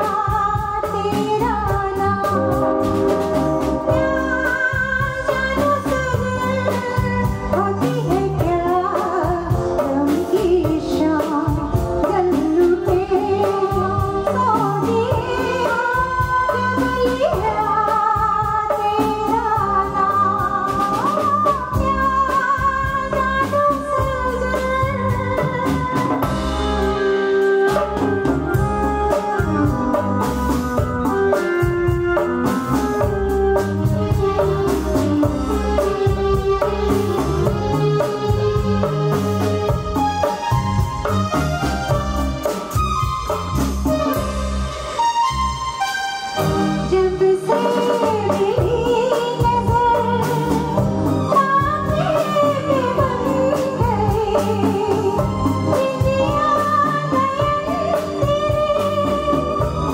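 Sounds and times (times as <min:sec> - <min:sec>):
woman singing: 0:00.0 - 0:38.9, 0:46.5 - 0:59.9
drum kit: 0:00.0 - 0:59.9
keyboards: 0:00.0 - 0:59.9
hand drums: 0:00.1 - 0:44.6.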